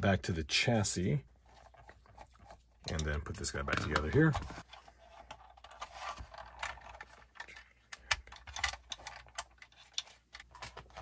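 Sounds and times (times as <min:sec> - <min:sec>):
small plastic parts clicking: 0:05.1 - 0:11.0.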